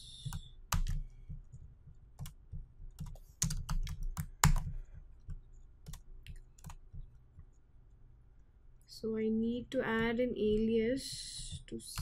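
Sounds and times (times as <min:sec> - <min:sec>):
keyboard keys clicking: 0:05.3 - 0:07.1.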